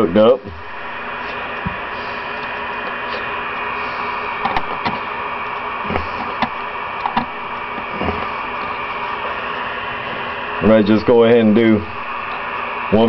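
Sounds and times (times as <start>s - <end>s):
steady hiss: 0.0s - 13.0s.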